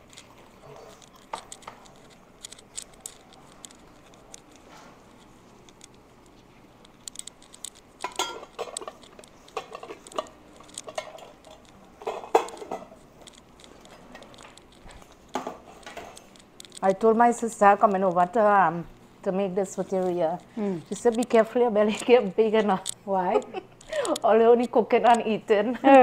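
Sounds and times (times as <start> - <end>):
dishes and utensils clattering: 7.5 - 13.0.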